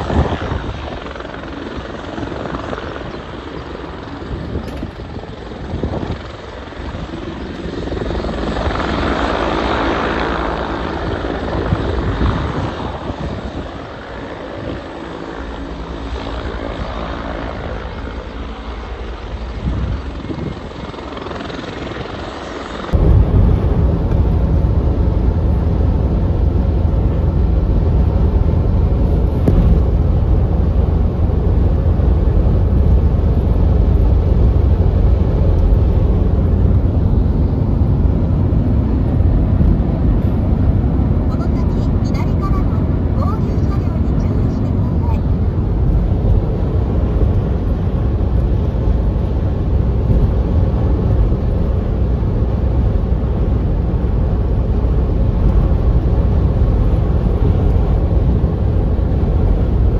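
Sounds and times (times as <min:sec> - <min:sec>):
road noise: 0:22.0 - 0:59.9.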